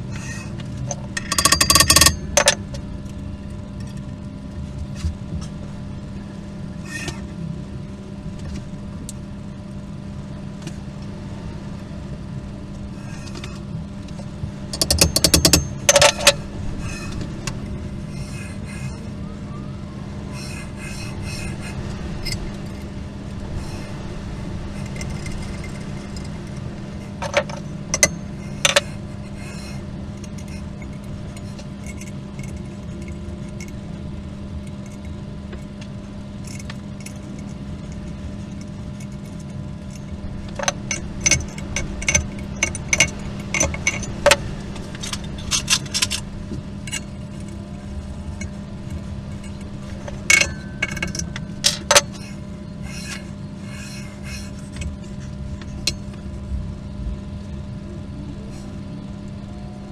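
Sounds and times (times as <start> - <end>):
steady low hum: 0.0 - 59.9
sharp metallic clicks and clinks: 0.3 - 2.6, 14.7 - 17.6, 49.3 - 54.9.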